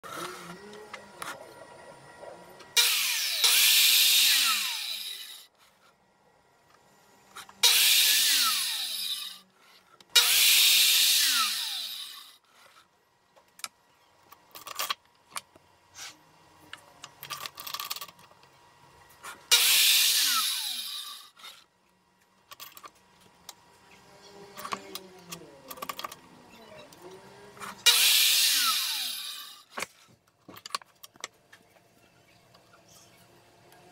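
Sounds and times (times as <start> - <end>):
circular saw cutting board: 2.6 - 6.0, 7.2 - 12.9, 19.2 - 21.7, 22.6 - 30.2.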